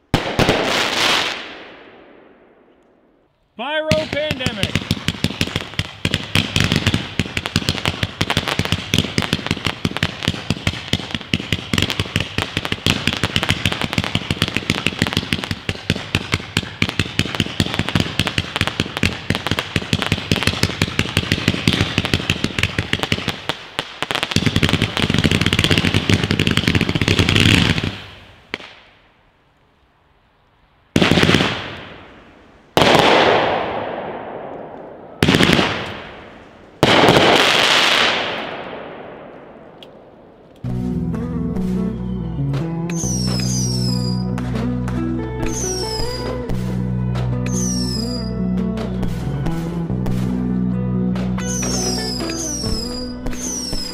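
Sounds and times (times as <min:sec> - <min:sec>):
loud firework shots: 0:00.0 - 0:02.7, 0:03.6 - 0:28.9, 0:31.0 - 0:40.4, 0:42.9 - 0:44.5, 0:51.2 - 0:53.9
rapid firework shots: 0:03.6 - 0:28.7, 0:31.0 - 0:32.1, 0:32.8 - 0:34.5, 0:35.1 - 0:39.2, 0:51.5 - 0:53.9.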